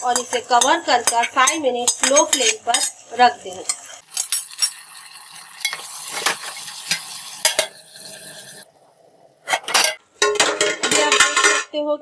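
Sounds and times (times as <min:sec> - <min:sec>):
spatula knocking and scraping pot: 0:00.0 - 0:03.0
gravy sizzling in a pot: 0:00.0 - 0:09.6.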